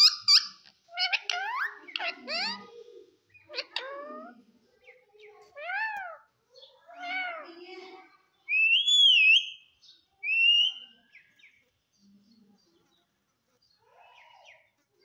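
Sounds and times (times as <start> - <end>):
parakeet calling: 0.0 - 6.3, 6.9 - 7.5, 8.5 - 11.0
parakeet whistles: 8.5 - 9.6.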